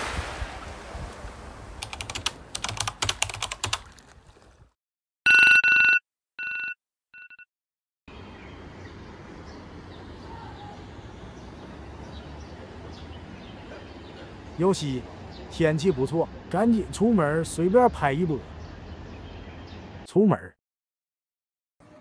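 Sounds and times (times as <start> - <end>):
crackling clicks: 1.8 - 4.0
phone alarm beeping: 5.3 - 7.5
faint outdoor ambience: 8.1 - 20.4.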